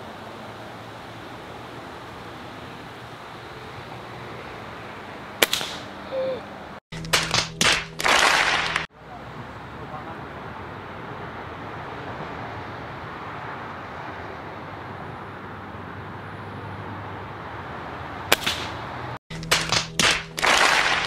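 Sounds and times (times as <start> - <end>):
air rifle shot: 5.4 - 5.9, 18.3 - 18.8, 19.5 - 21.0
sharp clicks: 19.3 - 21.0.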